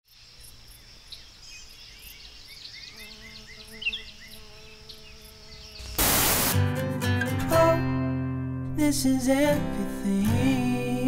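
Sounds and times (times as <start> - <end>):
bird chirps: 0.1 - 6.0
insect drone: 0.1 - 6.6.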